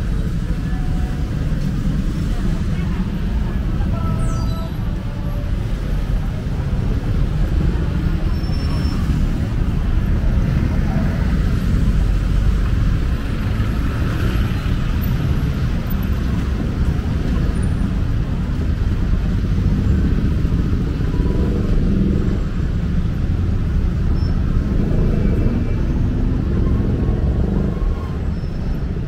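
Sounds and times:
road traffic rumble: 0.0 - 29.0
street noise: 0.0 - 29.0.

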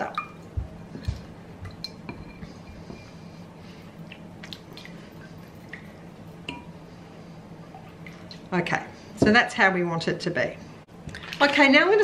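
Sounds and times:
liquid squishing: 4.0 - 6.3.

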